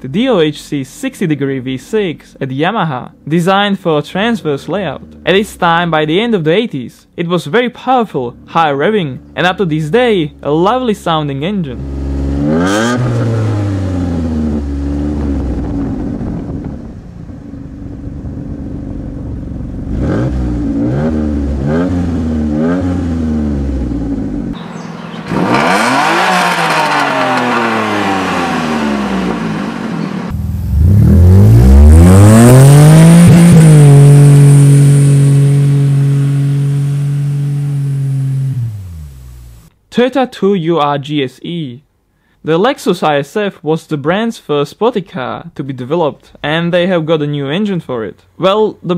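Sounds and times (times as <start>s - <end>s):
car engine revving: 9.1s - 39.7s.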